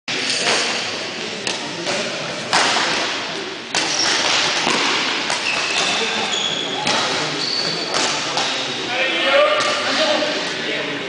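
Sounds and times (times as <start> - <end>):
racket hitting shuttlecock: 1.4 - 6.0.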